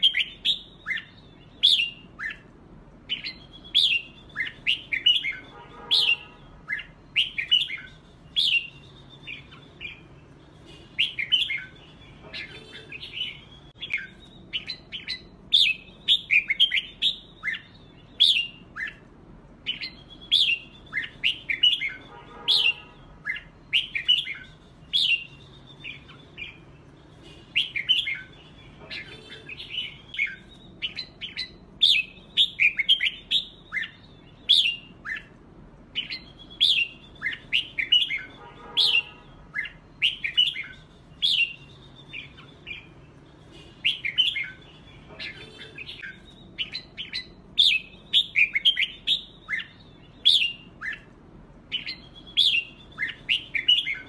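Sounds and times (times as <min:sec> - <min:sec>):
birds singing whistled phrases: 0:00.0 - 0:54.0
harsh bird notes: 0:00.0 - 0:54.0.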